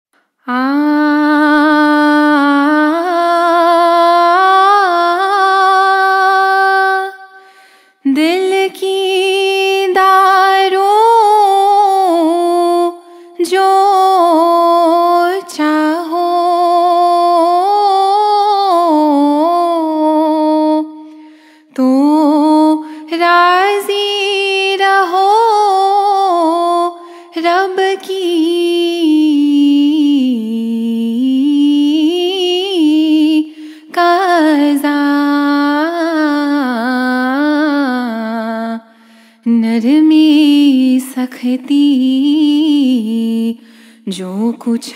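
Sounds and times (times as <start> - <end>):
woman singing a hymn unaccompanied: 0.5 - 7.3, 8.0 - 21.2, 21.8 - 38.8, 39.5 - 44.9
singer breathing: 7.4 - 8.1, 21.0 - 21.8, 22.8 - 23.1, 27.0 - 27.4, 33.5 - 33.9, 38.8 - 39.5, 43.6 - 44.1.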